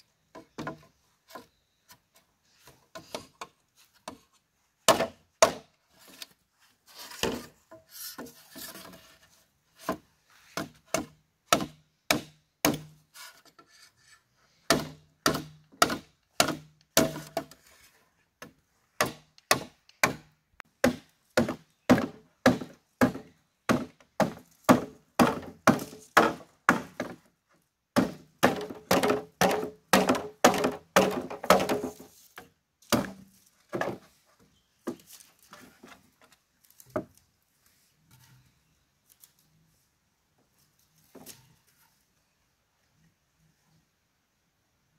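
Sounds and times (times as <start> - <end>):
tool striking bamboo: 4.9 - 5.8, 9.8 - 13.1, 14.7 - 17.6, 18.4 - 27.3, 28.0 - 34.0.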